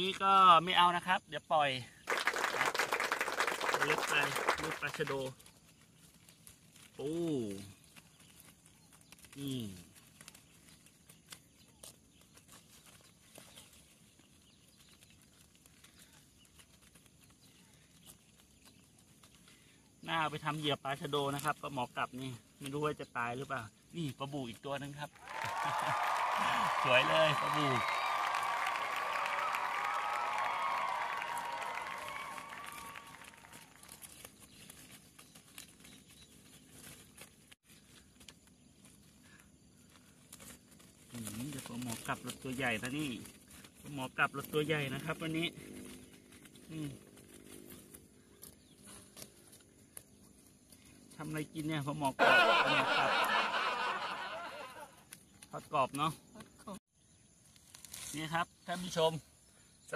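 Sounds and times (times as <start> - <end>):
net rustling and crinkling: 4.1 - 21.6, 30.4 - 51.2, 57.4 - 59.0.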